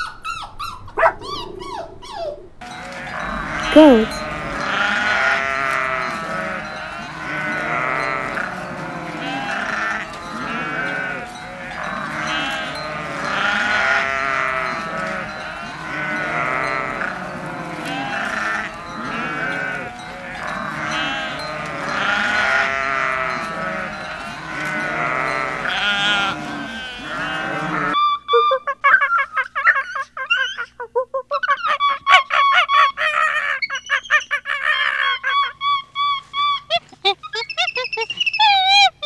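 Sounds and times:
goats bleating: 2.7s - 28.0s.

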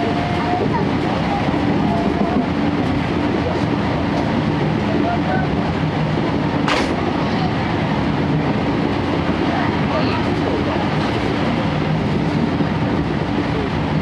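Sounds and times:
faint passengers' voices: 0.0s - 14.0s
train wheels rumbling on track: 0.0s - 14.0s.

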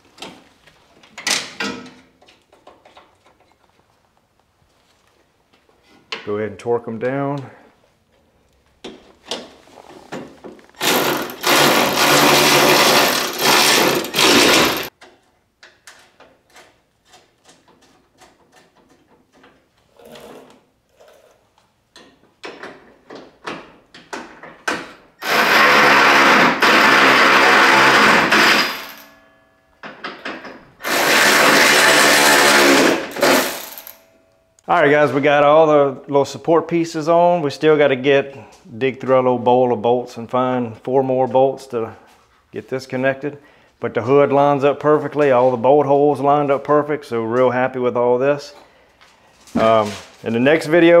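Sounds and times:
clicks and knocks of handled parts: 1.0s - 3.9s, 14.8s - 19.8s
cordless electric ratchet running: 10.8s - 14.9s.

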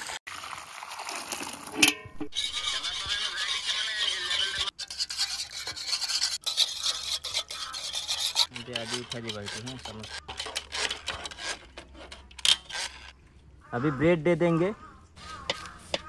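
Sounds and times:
scratchy rasping and rubbing: 2.3s - 13.2s, 15.2s - 16.0s.

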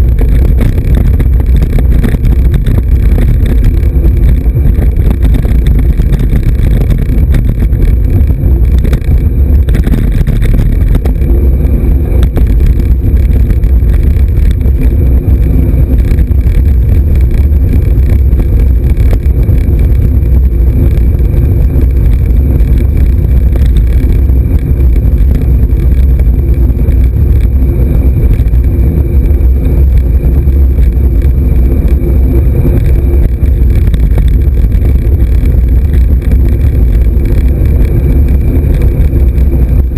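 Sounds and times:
bike road rumble: 0.0s - 39.9s
wind buffeting microphone: 0.0s - 39.9s.

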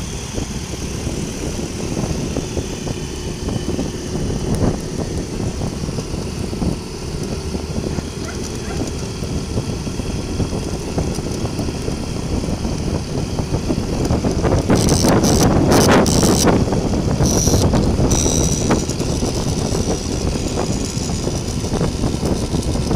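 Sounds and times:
motorcycle engine running: 0.0s - 22.9s
road and wind noise: 0.0s - 22.9s.

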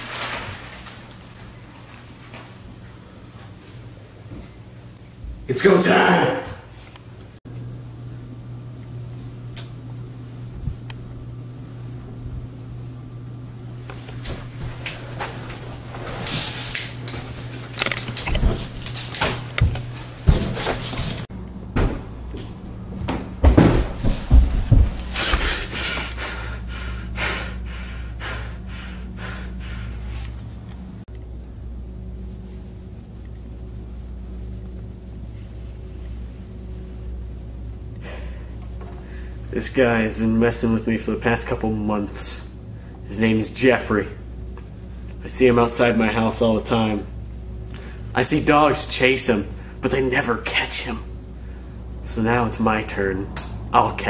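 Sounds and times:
low hum: 0.0s - 54.0s
man breathing hard: 25.2s - 30.4s.

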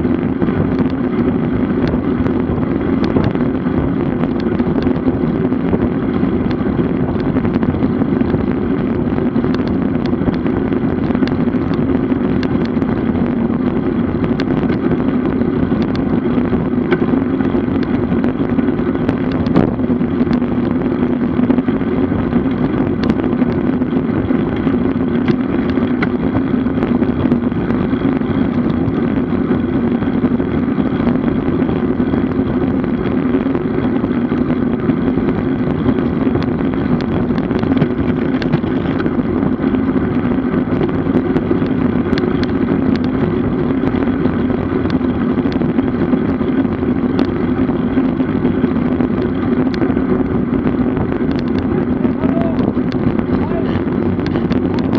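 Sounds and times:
bicycle tyre hum on road: 0.0s - 54.9s
wind on microphone: 0.0s - 54.9s.

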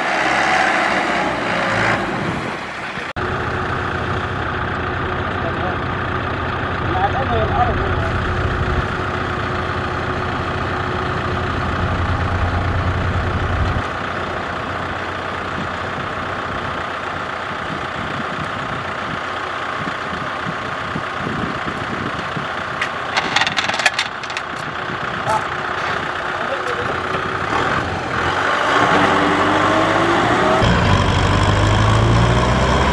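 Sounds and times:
diesel engine idling: 3.2s - 28.4s
metal chain clinking: 23.1s - 24.5s.

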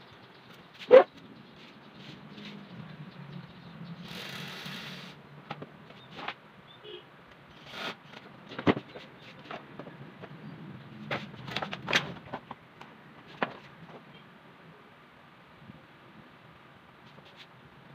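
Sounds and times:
fan guard clicks and knocks: 8.1s - 10.4s, 11.0s - 14.0s.

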